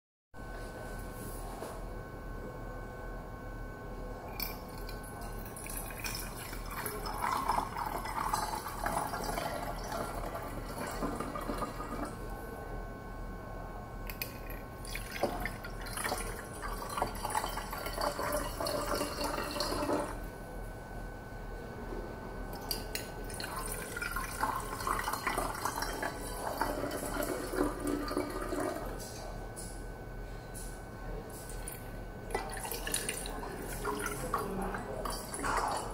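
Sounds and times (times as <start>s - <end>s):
water pouring into metal bottle: 4.4s - 12.2s, 14.2s - 20.2s, 23.3s - 28.9s.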